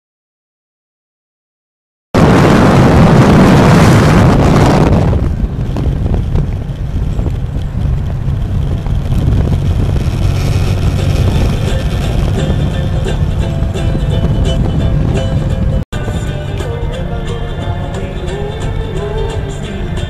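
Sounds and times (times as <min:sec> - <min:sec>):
motorcycle engine and road drone: 0:02.2 - 0:20.0
wind rushing over microphone: 0:02.2 - 0:20.0.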